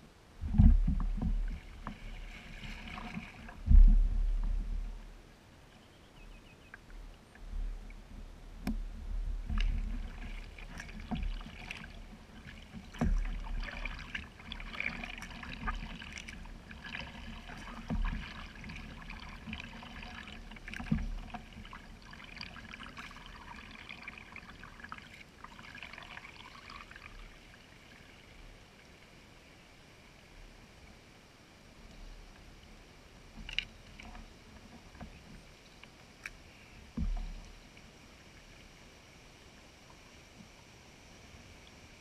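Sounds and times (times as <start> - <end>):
wind rumble on microphone: 0.0 - 5.4
paddles splashing in water: 0.4 - 5.0, 8.7 - 28.1.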